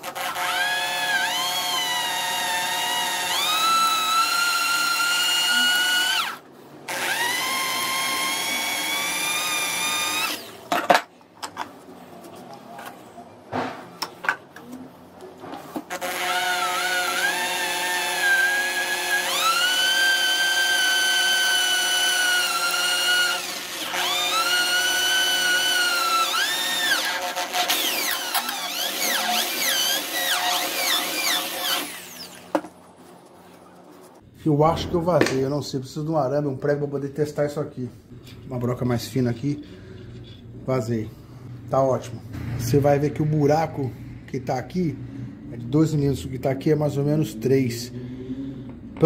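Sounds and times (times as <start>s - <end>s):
electric drill whining: 0.0s - 10.6s, 15.9s - 32.6s.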